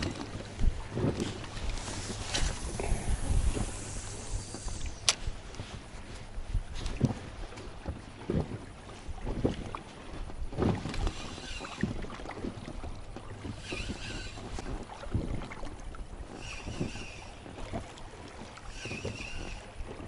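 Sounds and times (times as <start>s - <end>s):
water lapping and splashing: 0.0s - 20.0s
wind rumble on microphone: 0.0s - 20.0s
high-pitched whirring bursts: 1.8s - 5.2s, 11.1s - 11.9s, 13.5s - 14.6s, 16.3s - 17.4s, 18.7s - 19.7s.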